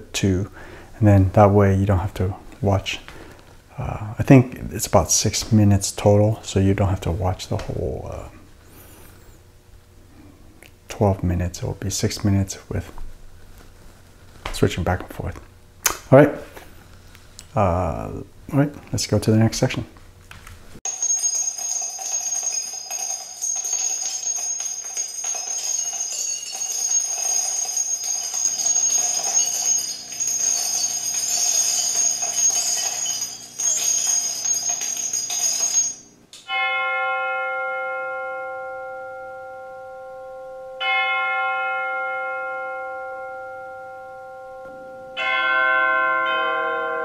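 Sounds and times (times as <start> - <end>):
shimmering jingling bells: 20.9 - 40.2, 40.8 - 47.0
deep bell tone ringing: 20.9 - 47.0.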